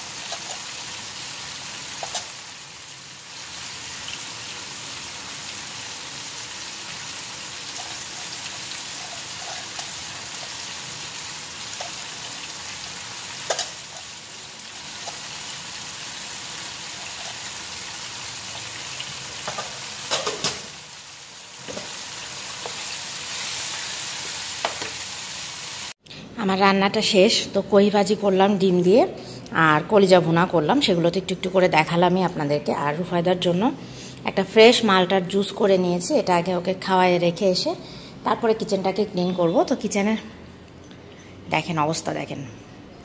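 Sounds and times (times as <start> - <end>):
food sizzling in oil: 0.0 - 26.0.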